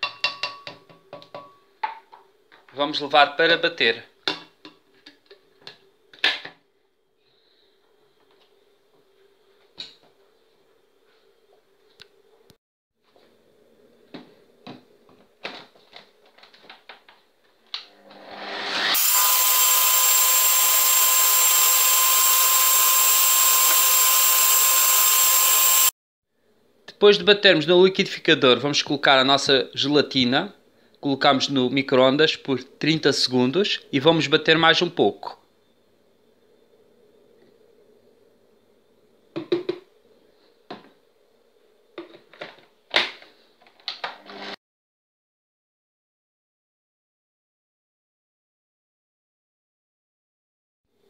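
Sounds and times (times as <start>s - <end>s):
electric blender motor whining: 18.0s - 25.9s.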